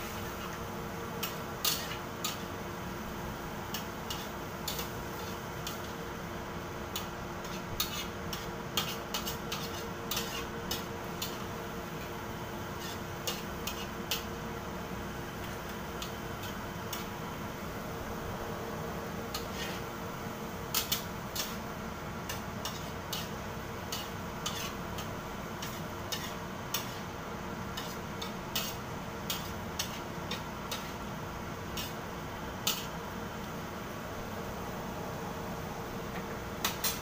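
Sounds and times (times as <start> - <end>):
metal spatula scraping a wok: 7.4 - 10.5, 12.8 - 14.0, 19.3 - 19.9, 23.9 - 24.8.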